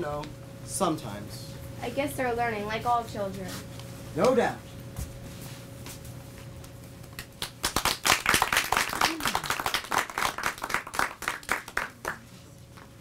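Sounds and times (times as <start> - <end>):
audience applauding: 7.4 - 12.3.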